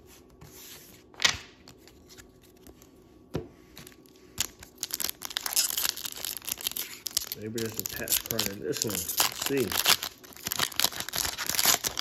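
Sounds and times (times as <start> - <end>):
foil wrapper crinkling and tearing: 4.4 - 12.0.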